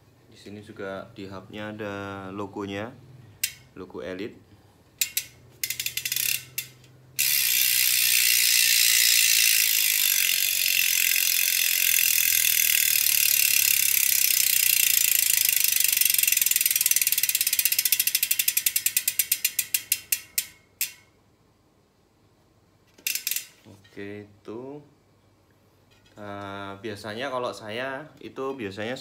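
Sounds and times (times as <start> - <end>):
bicycle freehub ratcheting: 3.4 - 3.8, 5.0 - 21.2, 22.9 - 23.6.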